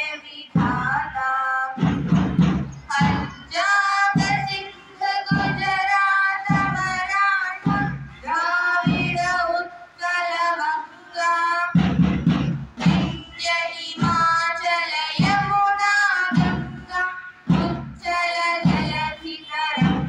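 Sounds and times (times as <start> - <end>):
children singing together: 2.9 - 11.9, 13.4 - 20.0.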